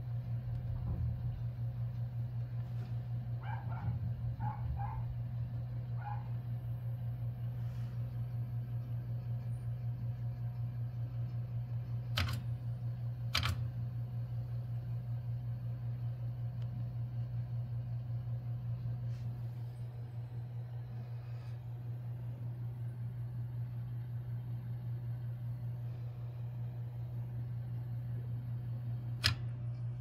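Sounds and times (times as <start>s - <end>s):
fluttering mechanical hum: 0.0s - 30.0s
sharp clicks: 29.2s - 29.5s.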